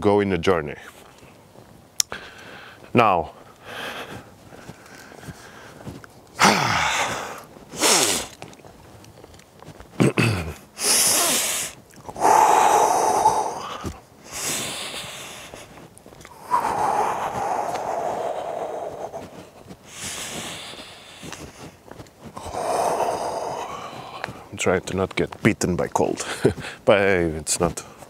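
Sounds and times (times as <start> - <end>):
man sniffing and blowing nose: 6.4 - 8.4, 10.8 - 15.7, 16.3 - 21.7.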